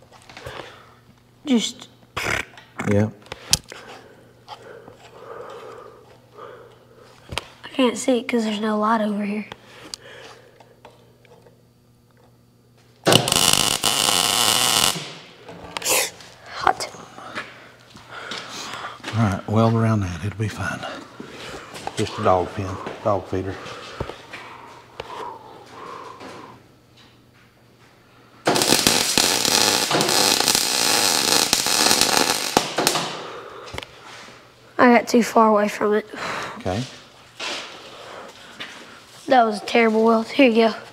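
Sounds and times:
welding arc crackling: 0:13.0 - 0:16.2, 0:28.4 - 0:33.2.

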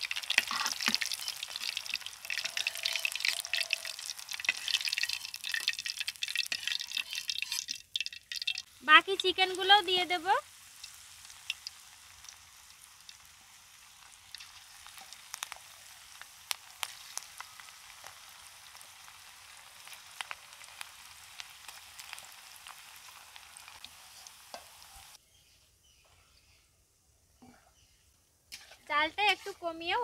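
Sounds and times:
food deep-frying in oil: 0:00.0 - 0:25.2
oil popping and crackling: 0:00.0 - 0:25.2.

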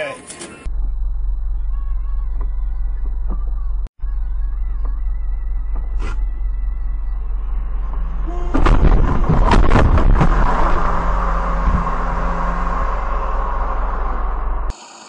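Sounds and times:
vehicle collision bangs: 0:07.9 - 0:14.7.

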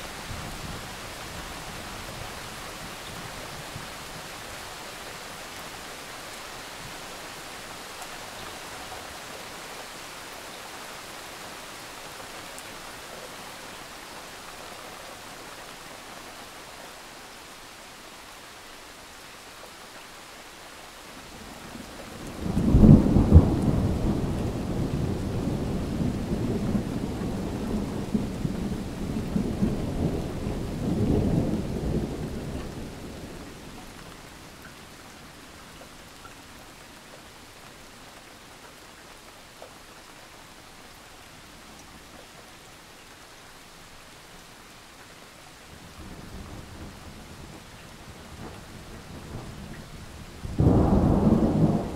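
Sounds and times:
steady rain hissing: 0:00.0 - 0:51.9
thunder clap and rumble: 0:22.2 - 0:33.5, 0:48.2 - 0:51.9.

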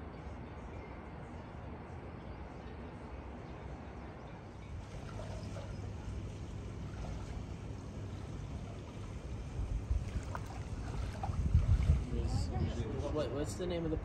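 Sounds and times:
pool water lapping: 0:04.5 - 0:13.1.

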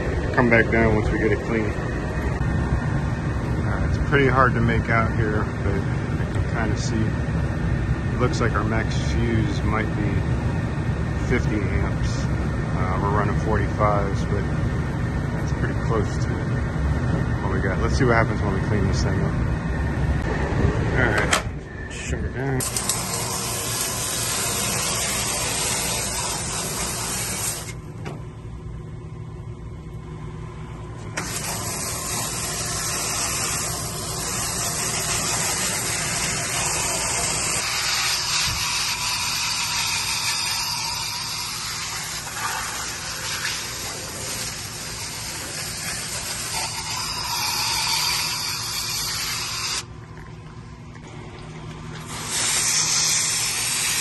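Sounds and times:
hose spray hissing on metal fins: 0:22.6 - 0:27.7, 0:31.2 - 0:49.8, 0:52.1 - 0:54.0.

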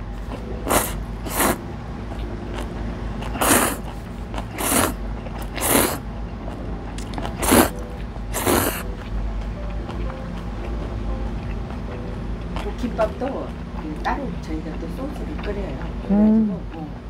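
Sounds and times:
person slurping noodles: 0:00.6 - 0:01.6, 0:03.2 - 0:06.0, 0:07.0 - 0:08.8.

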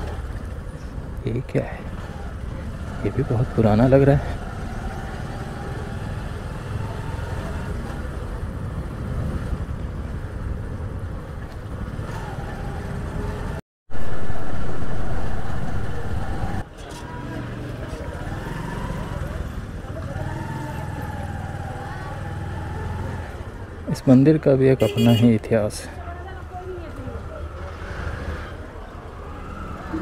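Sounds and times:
rushing sound: 0:13.9 - 0:16.7.

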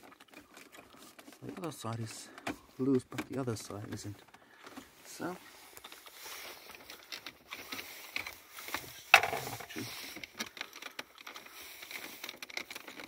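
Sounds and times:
plastic trim clicks and creaks: 0:00.0 - 0:05.0.

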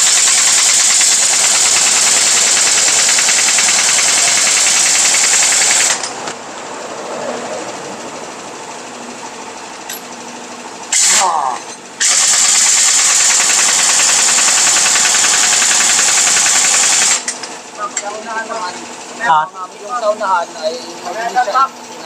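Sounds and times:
pneumatic impact wrench rattling: 0:00.0 - 0:06.4, 0:09.7 - 0:10.2, 0:10.8 - 0:18.7.

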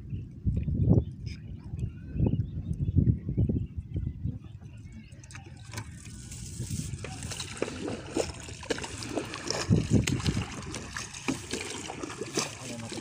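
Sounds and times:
water splashing and dripping: 0:05.2 - 0:13.0.

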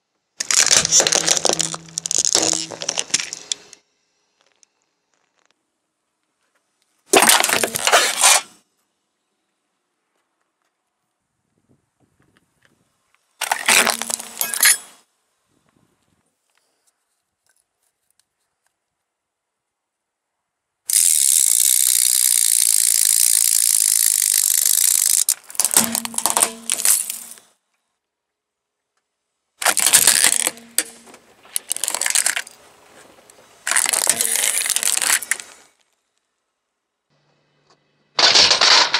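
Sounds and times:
tyre crushing objects: 0:00.4 - 0:03.6, 0:07.1 - 0:08.5, 0:13.4 - 0:14.8, 0:29.6 - 0:35.6.

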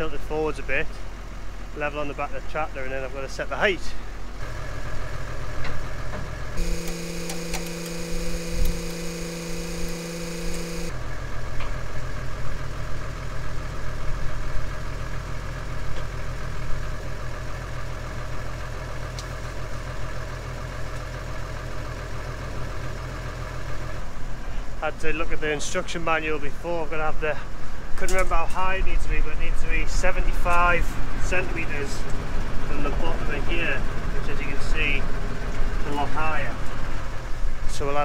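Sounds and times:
tractor diesel engine idling: 0:00.0 - 0:38.0
steady multi-tone whine: 0:06.6 - 0:11.0.

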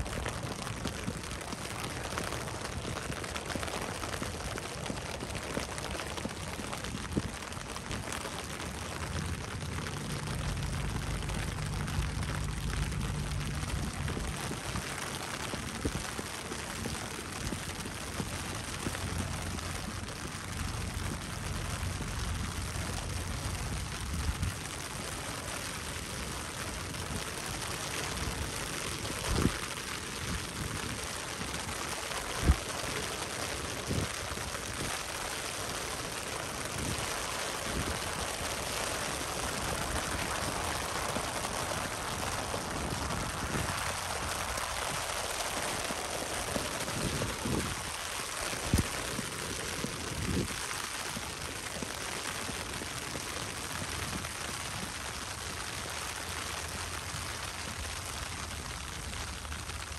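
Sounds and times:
steady rain hiss: 0:00.0 - 0:59.9
low rumble: 0:08.0 - 0:29.5.

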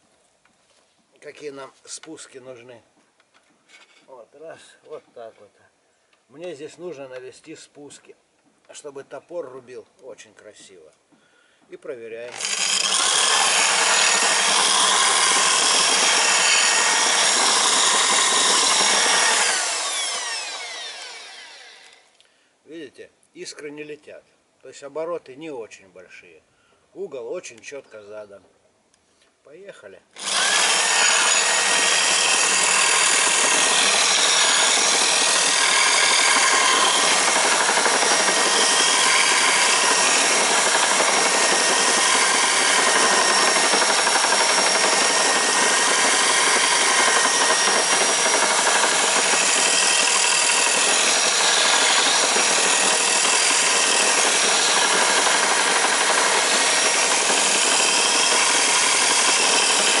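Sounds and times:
electric drill grinding axe blade: 0:12.2 - 0:22.1, 0:30.2 - 1:00.0.

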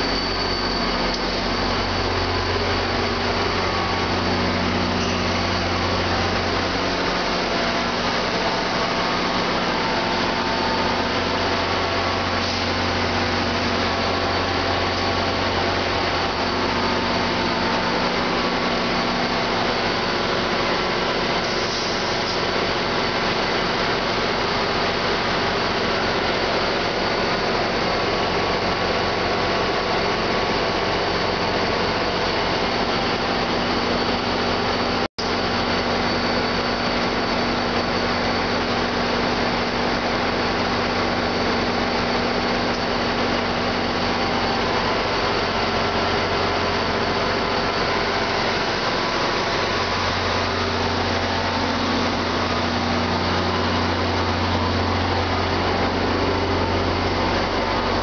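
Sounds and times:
diesel locomotive idling: 0:00.0 - 0:58.0
hiss: 0:12.3 - 0:13.1, 0:21.4 - 0:22.5.

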